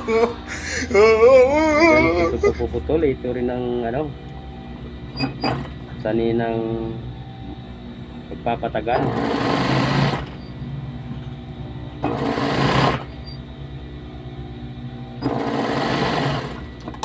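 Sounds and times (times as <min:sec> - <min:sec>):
low steady hum: 0:00.0 - 0:15.5
sewing machine stitching: 0:09.0 - 0:10.4, 0:12.0 - 0:13.1, 0:15.2 - 0:16.6.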